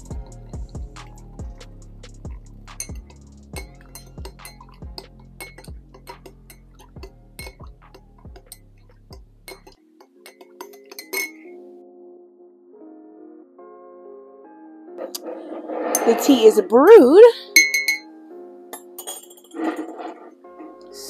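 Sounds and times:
background music with steady beat: 0:00.0 - 0:12.1
spoon clinking ceramic mug: 0:02.8 - 0:11.5, 0:17.6 - 0:18.1, 0:18.8 - 0:19.6.

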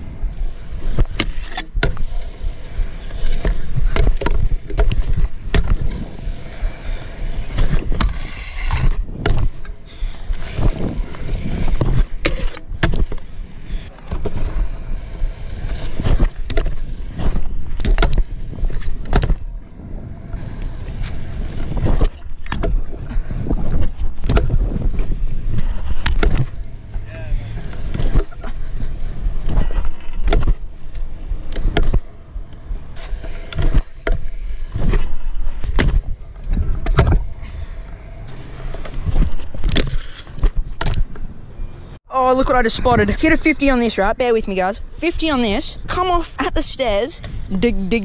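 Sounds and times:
scooter wheels rolling on concrete: 0:00.0 - 0:22.1, 0:22.7 - 0:48.0
wind rumble on microphone: 0:00.0 - 0:41.4.

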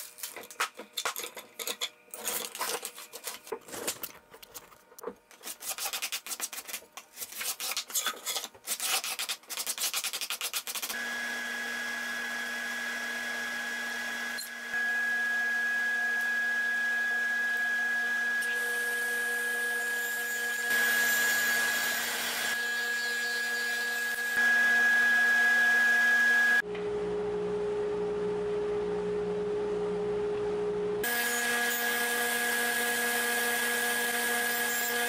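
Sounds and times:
table saw whine: 0:11.0 - 0:27.5, 0:30.6 - 0:35.0.

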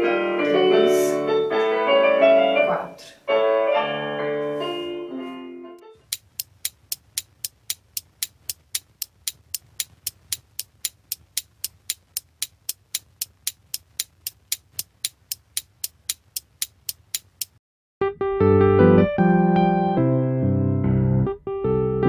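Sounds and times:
clock ticking: 0:06.0 - 0:17.6.

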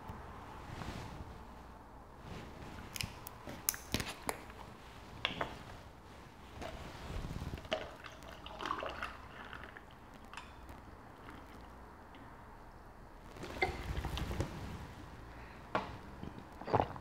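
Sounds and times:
liquid sloshing: 0:06.5 - 0:12.2
ice shifting in a cup: 0:07.5 - 0:11.8.

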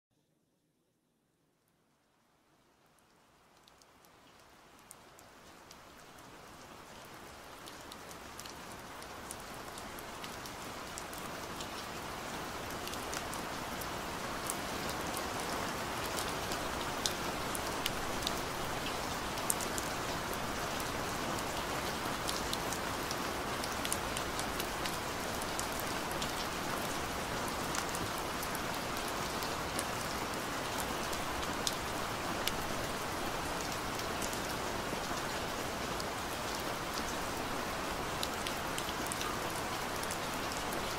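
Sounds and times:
rain hiss with drop ticks: 0:02.8 - 0:40.9.

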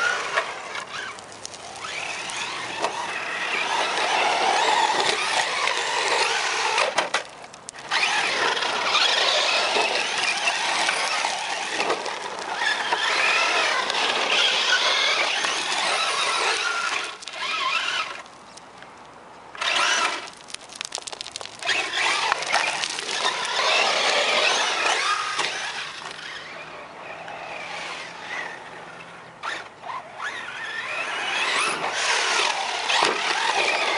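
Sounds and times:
tyres churning gravel: 0:00.0 - 0:33.9
electric motor whining: 0:07.8 - 0:18.2, 0:21.7 - 0:28.7.

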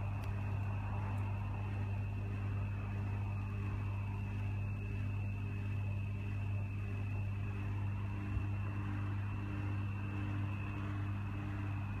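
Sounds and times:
high whine: 0:00.0 - 0:12.0
low mechanical hum: 0:00.0 - 0:12.0.

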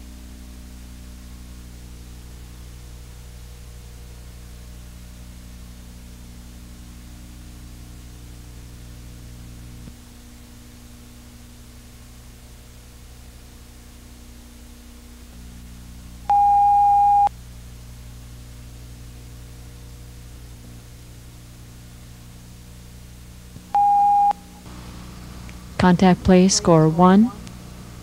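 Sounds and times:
electrical hum and hiss: 0:00.0 - 0:28.0
electronic beep: 0:16.3 - 0:17.3, 0:23.8 - 0:24.5.

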